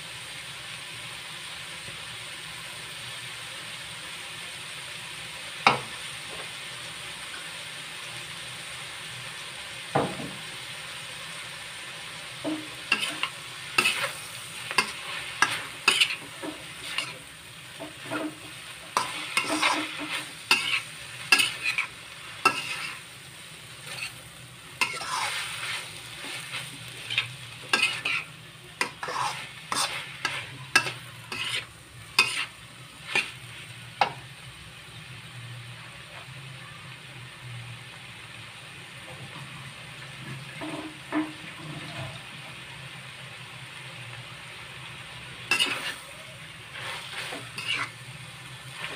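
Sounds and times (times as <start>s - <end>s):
frying sizzle: 0.0s - 48.9s
metal spatula scraping wok: 12.4s - 34.2s, 40.6s - 42.3s, 45.5s - 48.9s.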